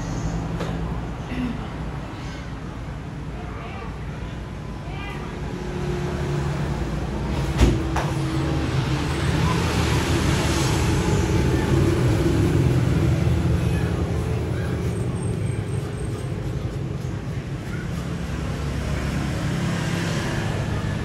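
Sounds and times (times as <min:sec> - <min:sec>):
vehicle engine passing: 0:05.3 - 0:21.0.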